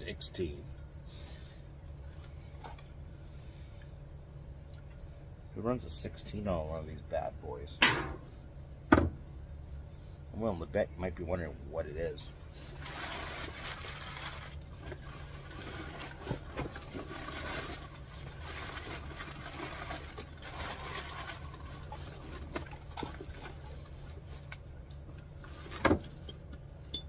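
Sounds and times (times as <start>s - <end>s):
paper and cardboard rustling: 12.5s - 24.5s.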